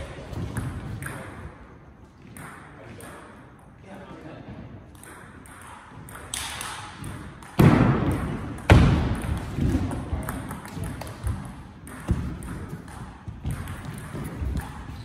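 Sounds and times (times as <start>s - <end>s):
loud echoing thuds: 7.0s - 10.4s.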